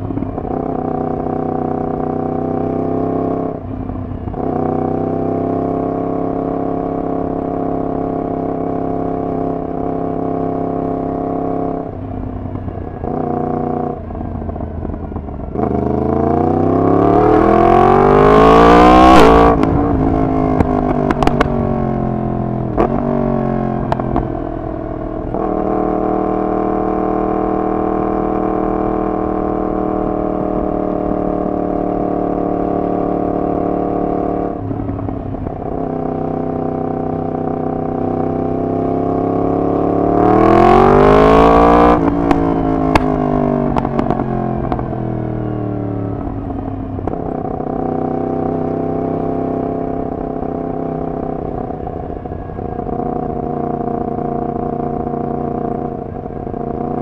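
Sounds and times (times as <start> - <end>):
motorcycle engine revving: 0.0 - 57.0
exhaust cracks: 19.5 - 22.0.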